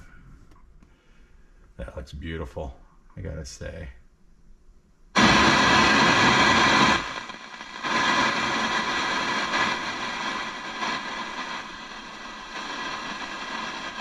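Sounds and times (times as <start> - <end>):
radio static hissing: 5.2 - 14.0.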